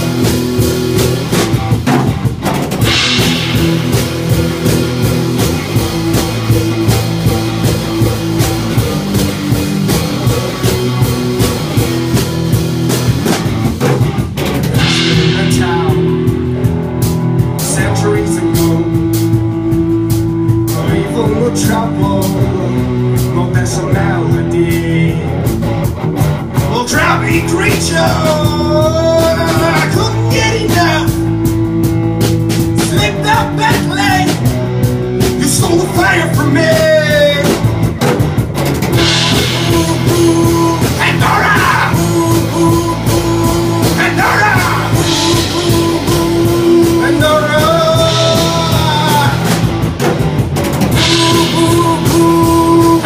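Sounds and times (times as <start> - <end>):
rock band playing live: 0.0 - 53.0
man singing: 14.8 - 16.7, 17.5 - 19.8, 20.4 - 25.6, 26.6 - 31.7, 32.7 - 34.6, 35.2 - 37.7, 39.0 - 49.9, 50.9 - 53.0.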